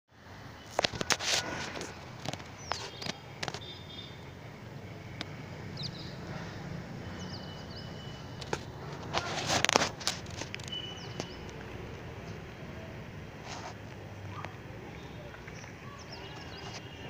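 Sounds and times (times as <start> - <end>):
bird chirps: 2.6 - 4.3, 5.8 - 6.3, 7.0 - 8.4, 10.7 - 11.6.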